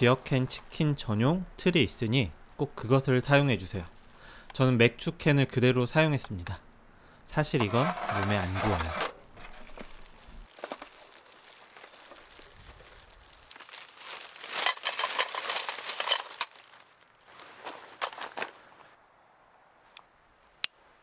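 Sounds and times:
foil and plastic gloves crinkling: 3.7 - 4.3, 7.6 - 18.6
charcoal clattering in metal brazier: 7.6 - 11.1, 13.6 - 16.8.

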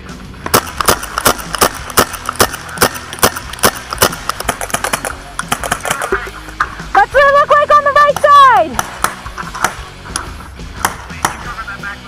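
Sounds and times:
paintball markers firing: 0.4 - 6.2, 8.2 - 11.5.

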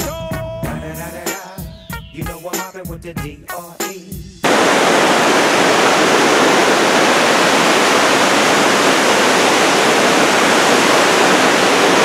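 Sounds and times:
creek rushing over boulders: 4.4 - 12.0.

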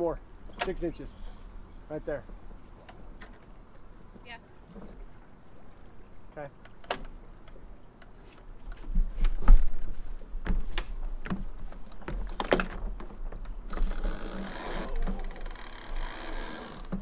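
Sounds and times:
rapid rasping ratchet: 13.7 - 17.0.

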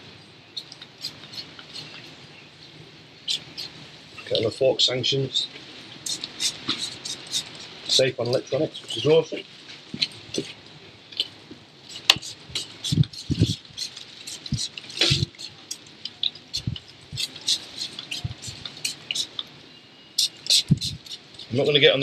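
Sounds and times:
spray bottle spritzes: 6.1 - 7.8, 11.9 - 15.5, 20.2 - 21.2.

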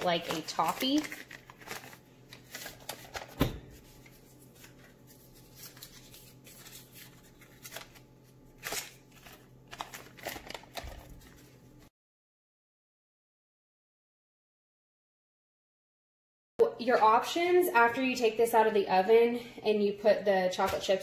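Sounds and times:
paper wrappers crinkling: 0.0 - 11.6.

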